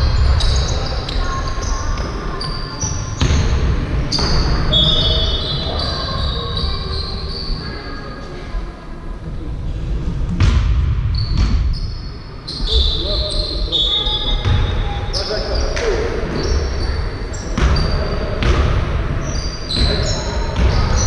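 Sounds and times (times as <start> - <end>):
sneakers squeaking on floor: 0.0 - 8.0, 11.0 - 21.0
basketball thudding: 3.2 - 3.6.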